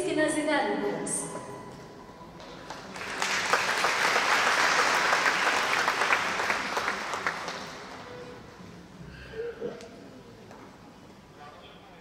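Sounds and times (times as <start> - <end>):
audience applauding: 2.4 - 8.4.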